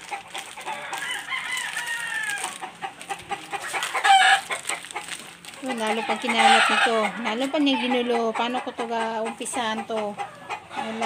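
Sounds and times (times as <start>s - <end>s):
plastic packets clicking and rustling: 0.0s - 6.3s
rooster crowing: 0.6s - 2.6s, 5.9s - 7.1s.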